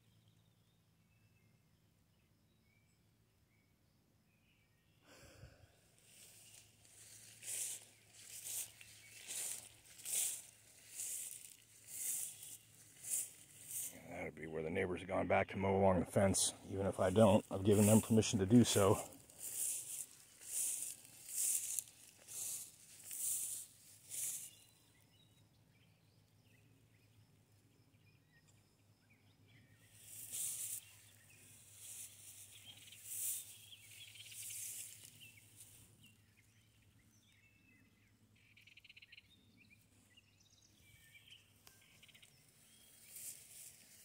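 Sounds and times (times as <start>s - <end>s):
footsteps rustling through grass: 5.9s - 14.1s, 16.9s - 24.8s, 29.9s - 36.3s, 41.8s - 44.0s.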